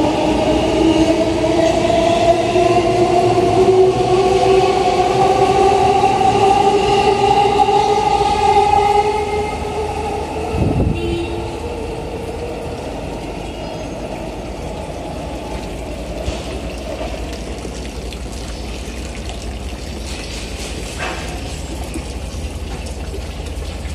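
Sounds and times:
steady background noise: 0.0 - 23.9.

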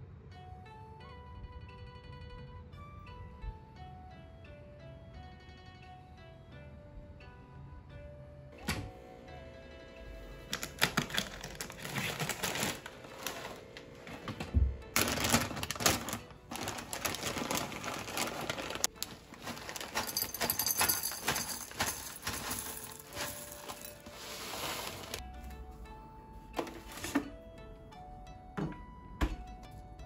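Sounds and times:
plastic bag rustling: 10.5 - 25.2.

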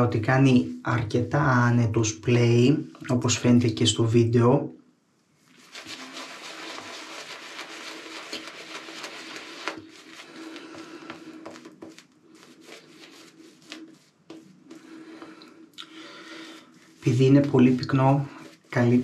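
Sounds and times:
shaving brush lathering soap: 5.4 - 19.0
wet crackly swishing: 5.4 - 19.0.

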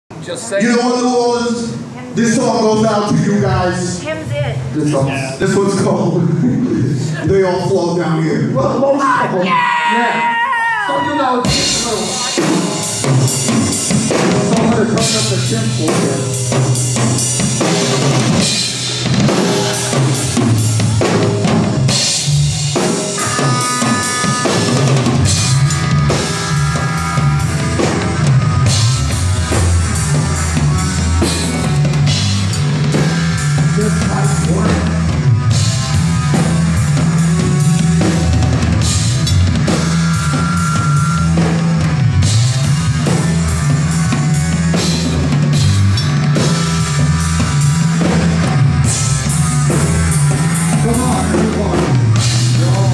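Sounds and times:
bass guitar: 1.8 - 52.9
electric guitars: 9.2 - 52.9
drum kit: 10.9 - 52.9.

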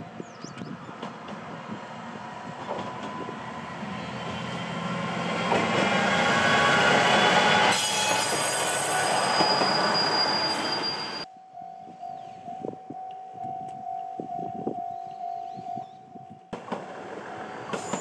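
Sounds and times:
diesel railcar passing: 0.0 - 11.3, 14.9 - 18.0
high wheel squeal: 6.2 - 11.3.

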